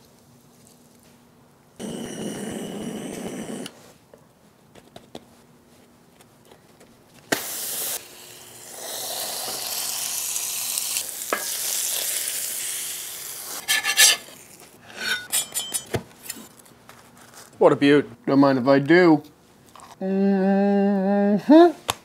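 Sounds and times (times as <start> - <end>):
butane torch hissing: 1.8 - 3.8, 7.3 - 14.3
sandwich sizzling on a griddle: 7.3 - 14.6.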